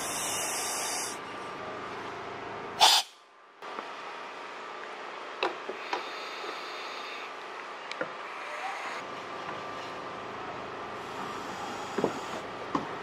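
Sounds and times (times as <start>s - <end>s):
compressed air hissing: 0.0s - 1.2s, 2.8s - 3.2s, 5.8s - 7.3s, 11.1s - 12.4s.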